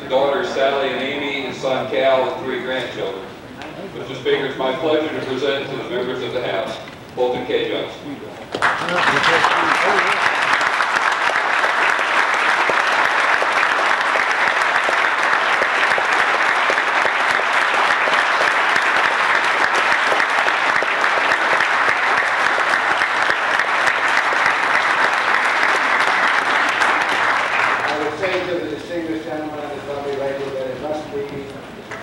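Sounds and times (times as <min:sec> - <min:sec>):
crowd applauding: 0:08.5 - 0:29.2.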